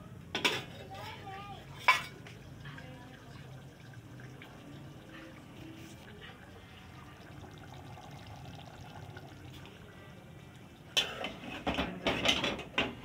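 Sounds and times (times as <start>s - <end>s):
metal spoon scraping a pot: 11.0s - 12.9s.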